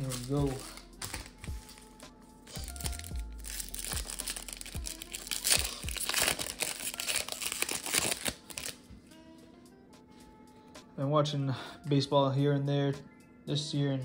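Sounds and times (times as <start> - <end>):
foil wrapper tearing and crinkling: 0.0 - 1.9, 2.5 - 8.8.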